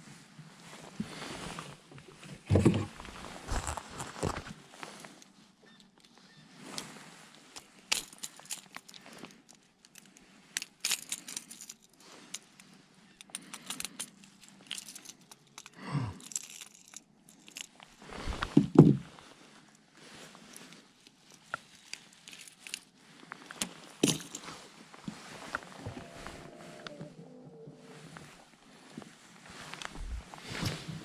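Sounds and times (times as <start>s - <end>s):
heavy thumps with rustling: 18.2s - 19.2s.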